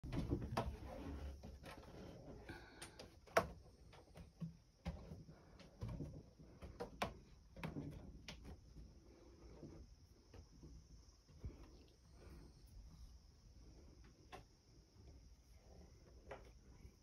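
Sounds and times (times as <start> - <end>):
knocks and clicks on wood: 2.8 - 8.7.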